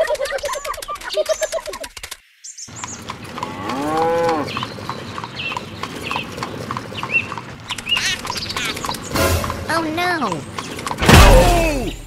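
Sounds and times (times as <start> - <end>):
cow mooing: 3.4 - 4.6.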